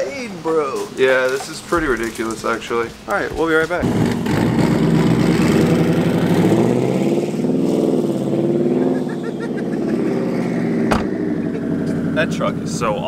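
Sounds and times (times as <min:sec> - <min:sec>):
vehicle engine revving: 0:03.8 - 0:13.0.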